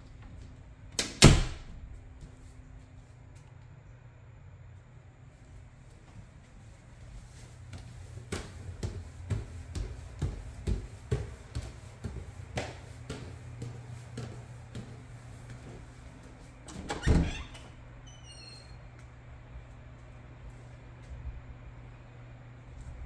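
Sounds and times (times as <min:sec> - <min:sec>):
steady low hum: 0:00.0 - 0:23.0
footsteps on hallway floor: 0:01.9 - 0:03.6, 0:05.3 - 0:16.8, 0:18.9 - 0:21.2
footsteps on wooden stairs: 0:07.6 - 0:16.5.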